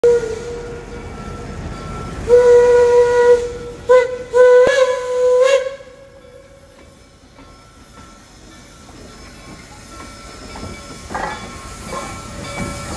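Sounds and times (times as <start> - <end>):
steam whistle blasts: 0.0 - 1.0, 2.2 - 6.2
steam hissing: 0.2 - 12.9.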